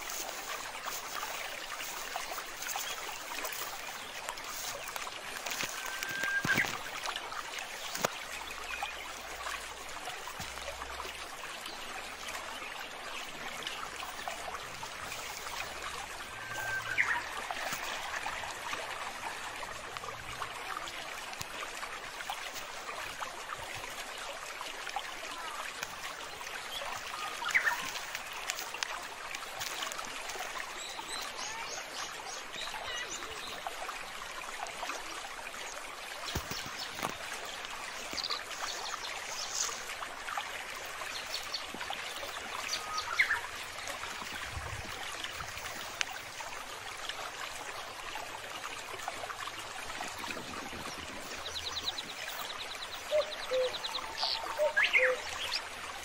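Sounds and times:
water trickling: 0:00.0 - 0:56.0
faint small bird calls: 0:51.4 - 0:55.6.

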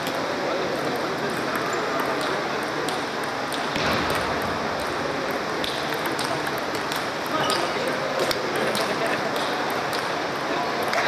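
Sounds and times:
table tennis balls clicking: 0:00.0 - 0:11.0.

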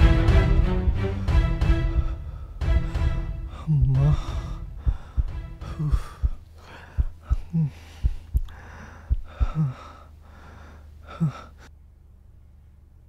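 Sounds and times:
man breathing hard and gasping: 0:01.8 - 0:11.7.

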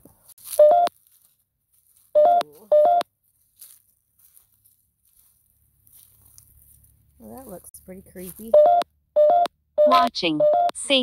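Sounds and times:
two-note electronic beeps: 0:08.6 - 0:11.0.

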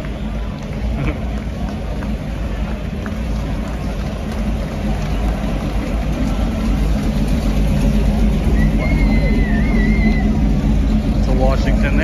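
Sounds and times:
car engine passing slowly: 0:00.0 - 0:12.0.

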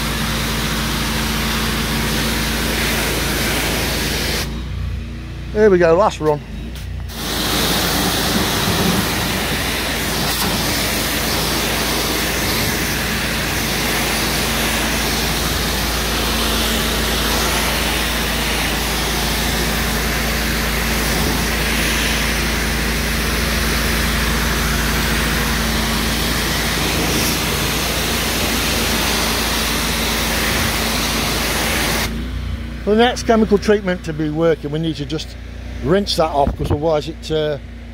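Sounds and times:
pressure washer spraying stone: 0:00.0 - 0:04.8, 0:06.8 - 0:35.2.

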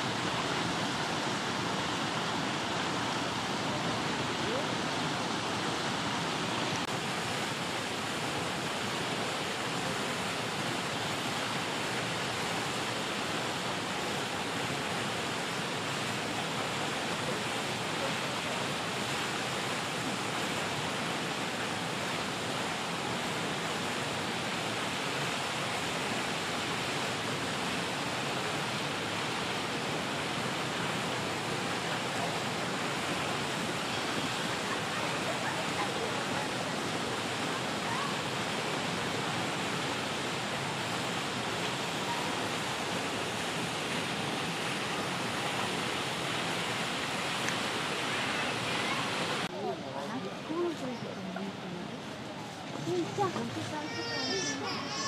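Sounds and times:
steady rushing noise: 0:00.0 - 0:14.6.

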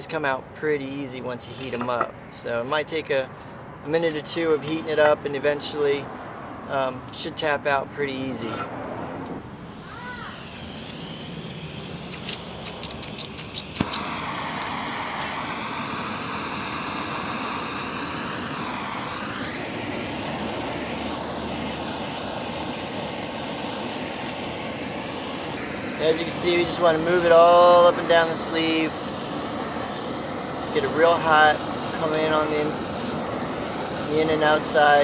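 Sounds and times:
blowtorch flame rushing: 0:09.3 - 0:35.0
quick clicks: 0:12.1 - 0:15.2.

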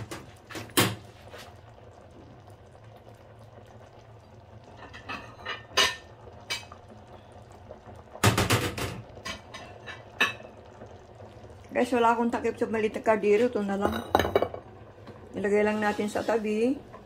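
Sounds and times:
faint bubbling in saucepan: 0:00.0 - 0:17.0
pots and utensils clinking: 0:04.6 - 0:07.2, 0:08.1 - 0:11.3, 0:13.2 - 0:17.0.

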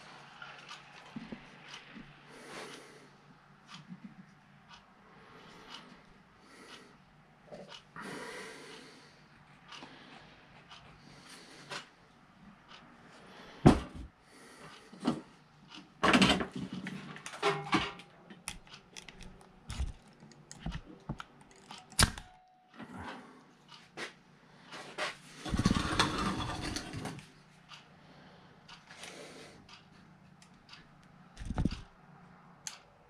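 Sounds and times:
knocks and clicks of tools: 0:14.7 - 0:22.8, 0:24.7 - 0:27.3, 0:31.4 - 0:32.0
rustling scrape: 0:24.7 - 0:27.2.

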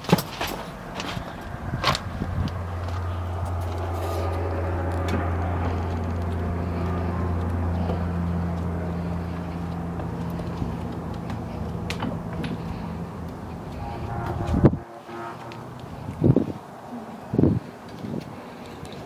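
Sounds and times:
steady low rumble: 0:00.6 - 0:19.0
footsteps on wooden boards: 0:05.0 - 0:14.7.

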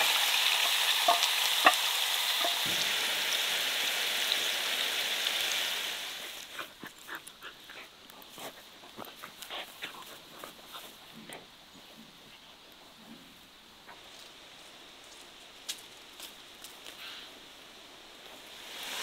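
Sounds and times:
meat sizzling in a skillet: 0:00.0 - 0:06.5, 0:17.8 - 0:19.0.

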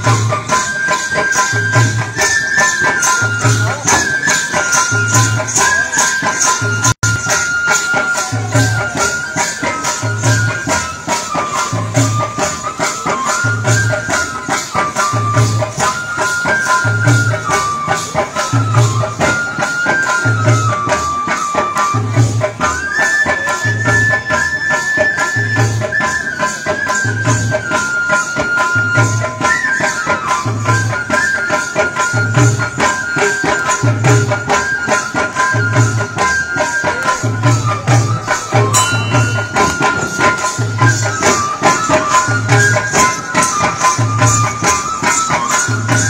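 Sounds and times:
high sliding melody: 0:36.6 - 0:46.0
fast jingle rattling: 0:38.2 - 0:46.0.

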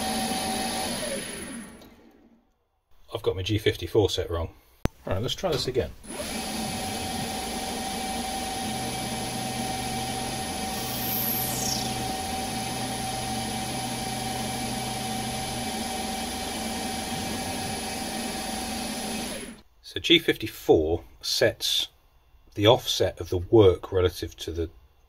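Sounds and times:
lathe spindle whine: 0:00.0 - 0:02.2, 0:06.0 - 0:19.6.

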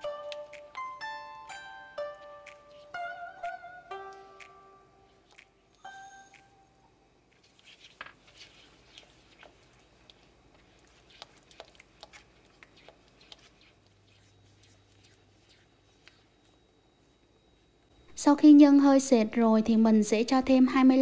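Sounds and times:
spatula stirring thick paste in pan: 0:07.3 - 0:16.6.

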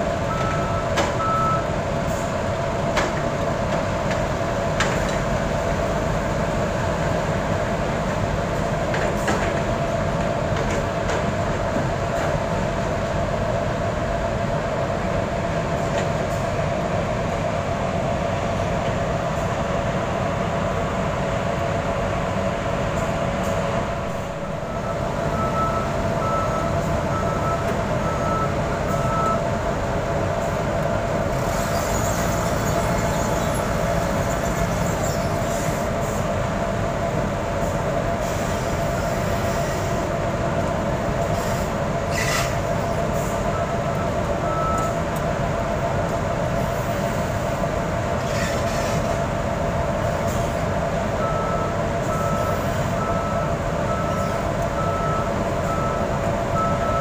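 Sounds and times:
engines and machinery humming: 0:00.0 - 0:57.0
reversing alarm beeps: 0:00.3 - 0:01.7, 0:24.3 - 0:29.5, 0:43.5 - 0:45.0, 0:51.2 - 0:57.0.

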